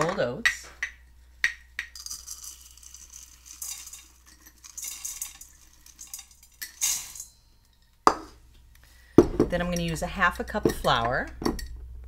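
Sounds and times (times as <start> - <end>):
oats pouring into a cup: 2.0 - 7.2.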